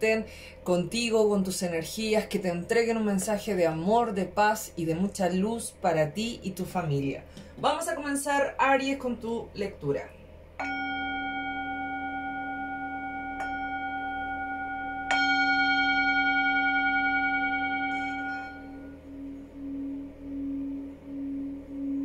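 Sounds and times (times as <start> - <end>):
singing bowl struck with mallet: 10.6 - 19.9
singing bowl rim humming: 10.6 - 22.0.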